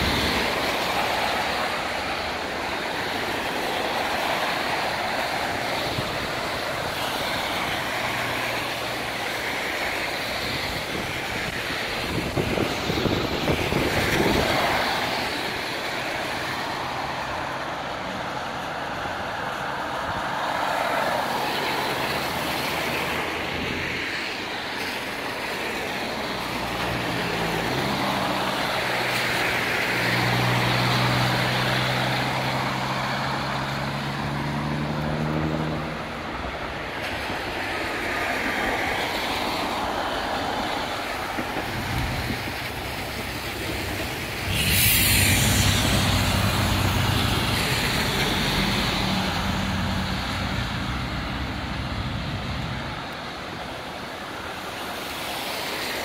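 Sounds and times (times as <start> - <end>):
tyres hissing on wet road: 0.0 - 56.0
passing vehicle low rumble: 38.5 - 53.9
heavy engine low drone: 41.0 - 54.5.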